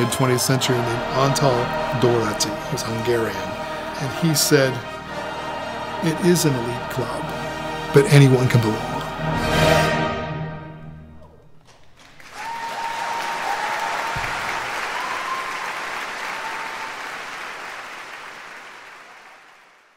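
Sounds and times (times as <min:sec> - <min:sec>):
audience applauding: 0:00.0 - 0:04.6, 0:11.6 - 0:19.9
crowd calling out: 0:00.0 - 0:06.4.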